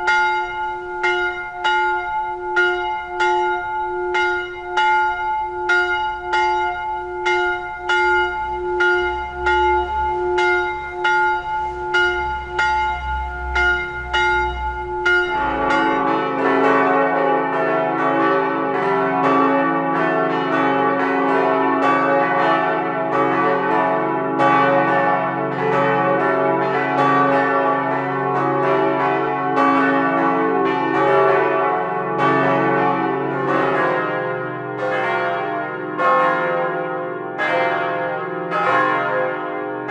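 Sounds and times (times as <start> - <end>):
peal of church bells: 0.0 - 39.9
single bell tolling: 0.1 - 16.7.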